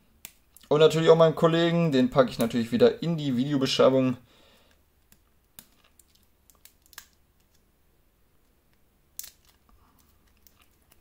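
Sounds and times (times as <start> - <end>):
sharp plastic crackle: 5.5 - 7.6, 9.1 - 11.0.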